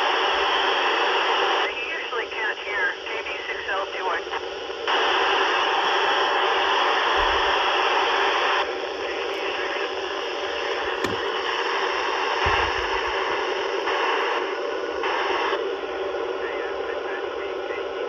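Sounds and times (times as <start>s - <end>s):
radio static hiss: 0.0s - 18.0s
soft low thumps: 12.4s - 13.2s.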